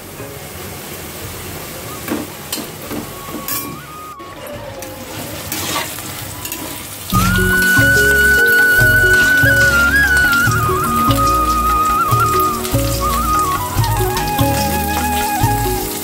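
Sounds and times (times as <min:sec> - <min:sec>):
food sizzling in hot oil: 0:05.4 - 0:16.0
background music: 0:07.1 - 0:16.0.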